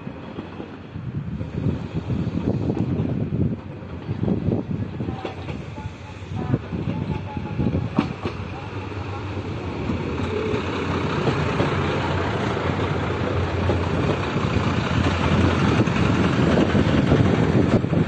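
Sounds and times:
railcars rolling past: 0.0s - 18.0s
diesel engine humming: 7.8s - 18.0s.

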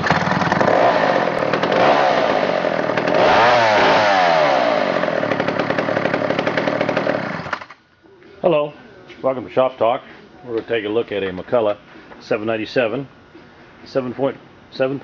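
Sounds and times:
chainsaw engine revving: 0.0s - 7.7s.

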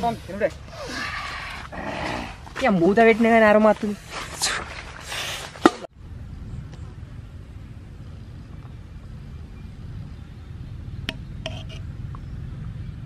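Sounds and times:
steady low rumble: 5.9s - 13.0s.

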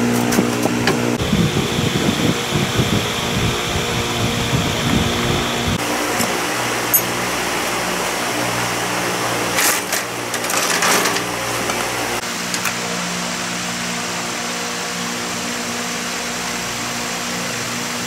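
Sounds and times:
steady mechanical hum: 0.0s - 18.0s
hand tools clinking on metal: 6.2s - 7.2s, 9.6s - 11.9s.

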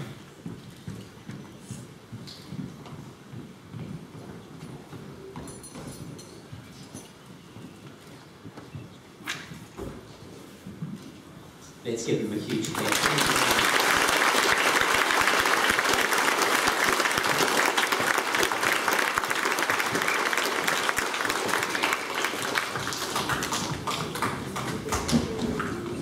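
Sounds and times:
children applauding: 12.5s - 26.0s.

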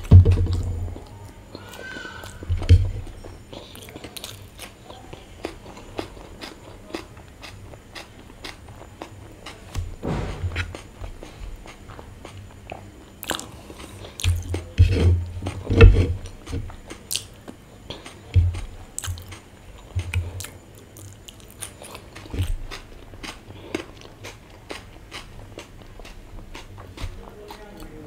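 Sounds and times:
person chewing and mouth sounds: 0.0s - 28.0s
heavier low thumps: 9.8s - 11.2s.

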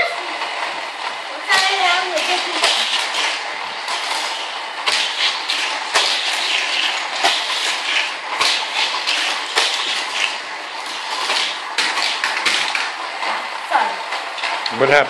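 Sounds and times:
toy cars rattling along plastic track: 1.4s - 13.0s.

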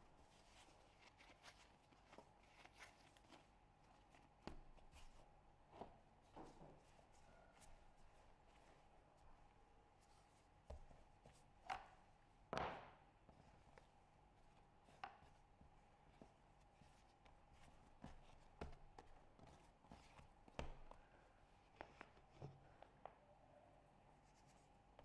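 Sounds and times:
dough handling taps: 10.6s - 12.0s, 18.0s - 21.0s.

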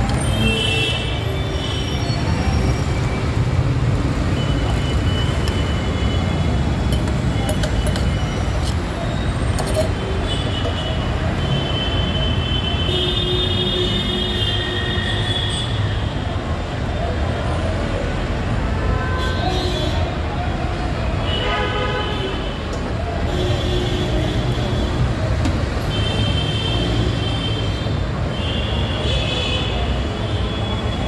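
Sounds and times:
traffic rumble: 0.0s - 14.4s.

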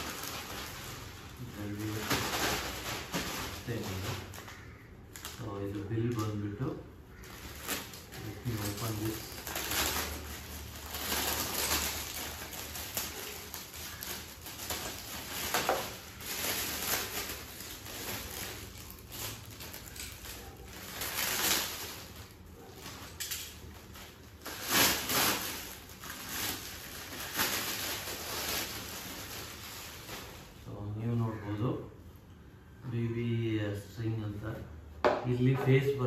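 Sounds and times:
plastic wrapping crinkling: 0.0s - 31.2s.

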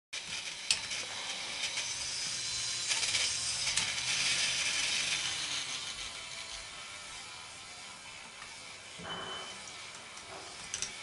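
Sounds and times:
faint motor hum: 0.2s - 11.0s
whir of plastic gears: 0.2s - 11.0s
plastic parts clicking and rattling: 10.6s - 11.0s.

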